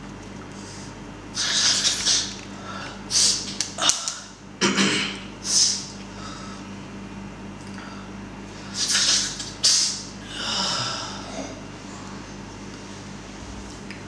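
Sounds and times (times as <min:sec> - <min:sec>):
low electrical hum: 0:00.0 - 0:14.0
man sniffing and snorting: 0:01.4 - 0:02.4, 0:08.6 - 0:11.6.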